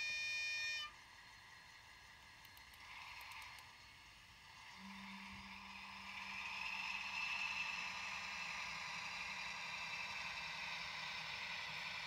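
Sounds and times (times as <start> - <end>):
model train motor whirring: 0.0 - 12.0.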